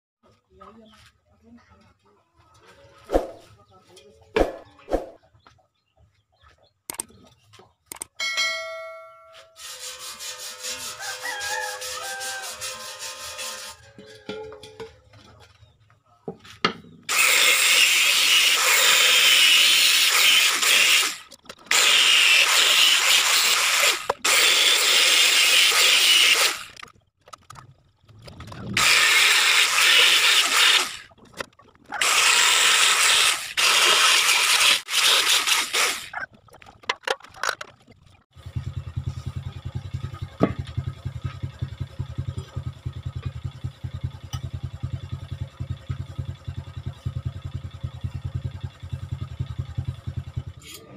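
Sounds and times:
angle grinder grinding steel: 9.3 - 14.6, 17.1 - 26.9, 28.8 - 31.2, 32.0 - 36.3
low hum with fast rattle: 26.3 - 33.8, 35.9 - 50.9.

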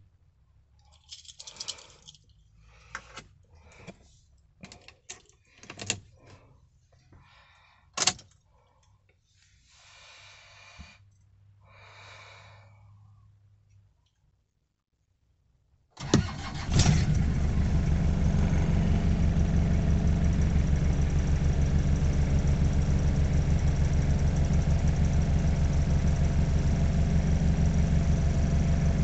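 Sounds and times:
keys jangling: 0.8 - 2.5.

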